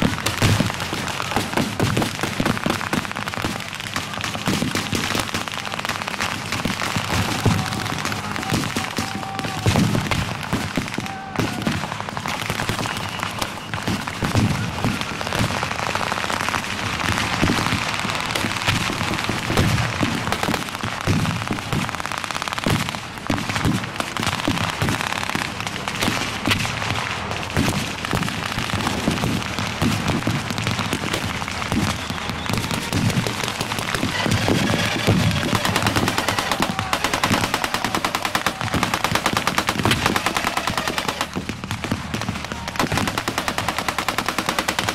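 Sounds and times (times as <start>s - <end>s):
rapid machine-gun burst: 32.0s - 44.9s.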